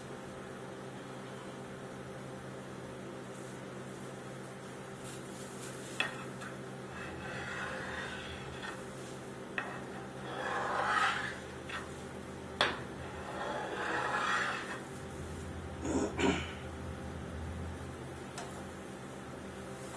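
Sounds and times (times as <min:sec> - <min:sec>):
refrigeration machine hum: 0:00.0 - 0:19.9
metal scraper rasping on pan: 0:06.0 - 0:14.9.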